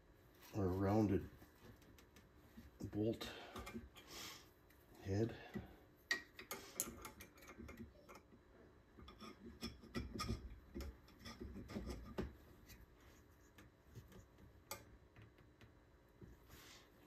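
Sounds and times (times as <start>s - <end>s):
hand tool clicking and scraping metal: 6.1s - 8.3s.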